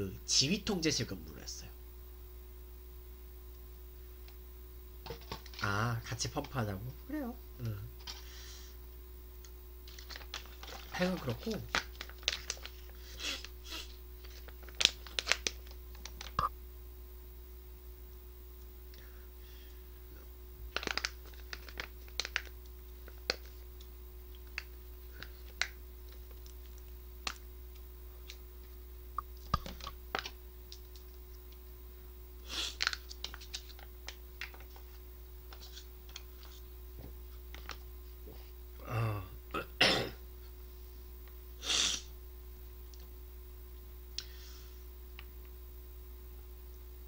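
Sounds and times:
throaty vocal sound: 38.8 - 39.8.

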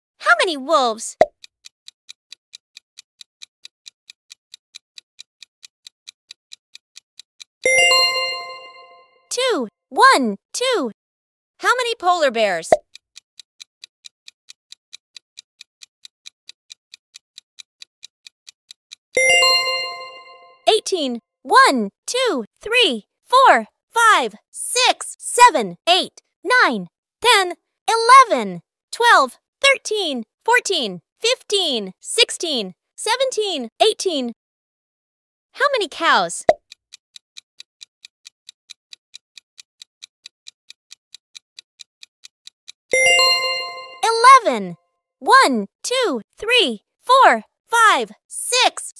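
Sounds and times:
clock-style timer ticks: 0.5 - 10.9, 11.7 - 34.4, 35.8 - 48.9.

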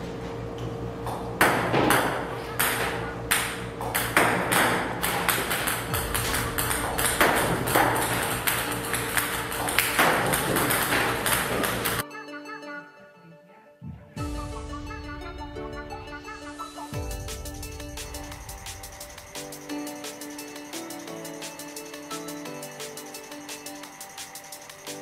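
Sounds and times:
steady hum: 0.0 - 12.0, 14.2 - 25.0
table tennis balls clicking on table: 1.4 - 12.0.

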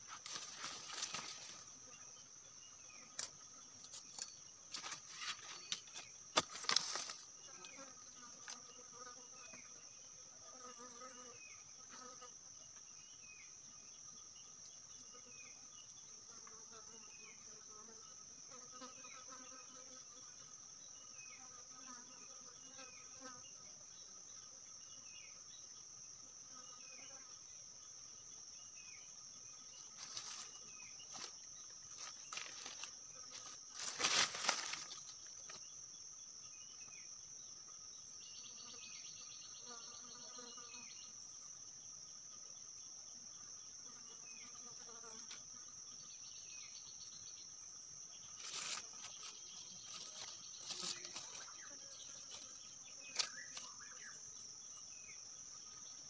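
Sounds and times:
bamboo sticks and leaves rustling: 0.0 - 1.7, 3.9 - 7.3, 30.0 - 35.6, 48.4 - 51.5
forest insects droning: 0.0 - 56.0.

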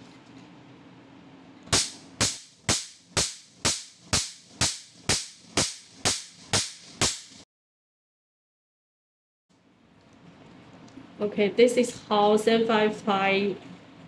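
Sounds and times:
laser pulses snapping: 1.7 - 7.4.

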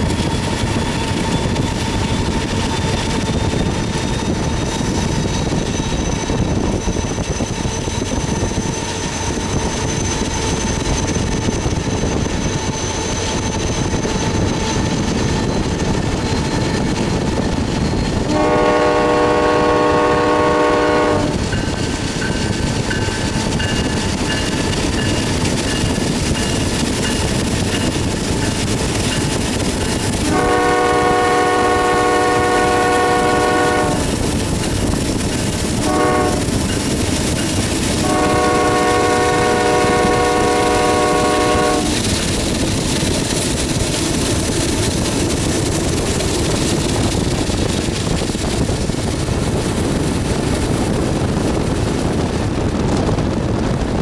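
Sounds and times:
train rumble: 0.0 - 54.0
locomotive air horn blasts: 18.3 - 21.4, 30.2 - 34.1, 35.8 - 36.6, 38.0 - 42.0.

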